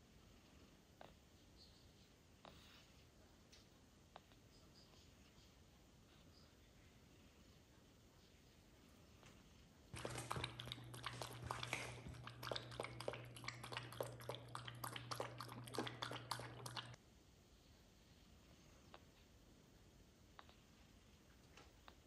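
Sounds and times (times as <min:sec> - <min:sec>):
cat crunching kibble: 0:10.0 - 0:17.0
puppy lapping water: 0:10.0 - 0:17.0.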